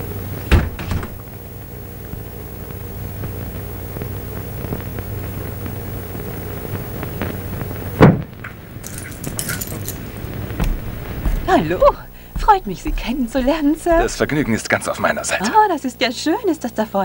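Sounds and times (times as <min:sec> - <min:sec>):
low hum: 0:00.0 - 0:15.1
film soundtrack hiss: 0:00.0 - 0:17.0
loud thump: 0:00.5 - 0:01.2, 0:08.0 - 0:08.4, 0:10.4 - 0:14.6.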